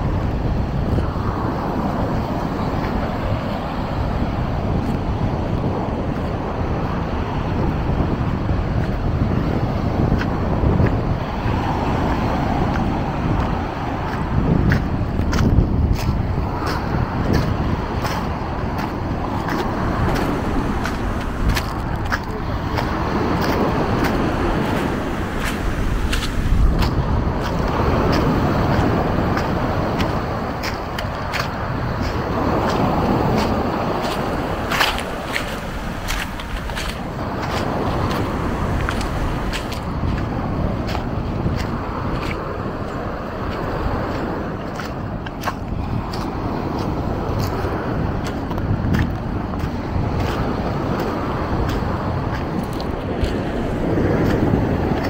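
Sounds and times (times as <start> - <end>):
wind buffeting microphone: 0.0 - 55.0
footsteps crunching: 18.8 - 27.6, 28.2 - 40.3.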